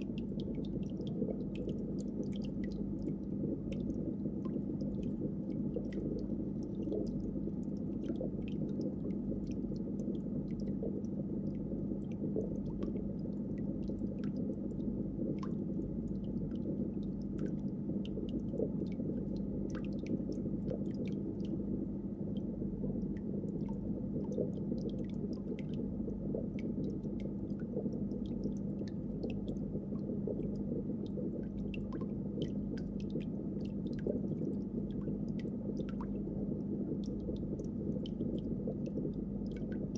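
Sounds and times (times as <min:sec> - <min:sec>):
steady low hum: 0:00.0 - 0:39.9
water bubbling: 0:00.0 - 0:39.9.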